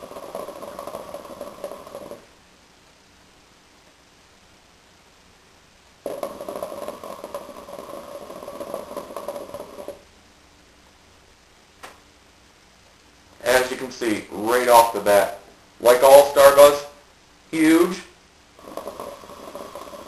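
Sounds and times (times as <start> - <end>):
hookah water bubbling: 0.0 - 2.6, 6.0 - 10.2, 18.5 - 20.0.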